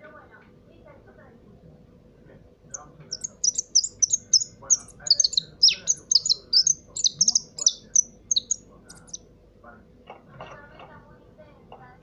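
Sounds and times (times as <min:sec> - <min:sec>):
finch chirping and trilling: 0:02.7 - 0:09.2.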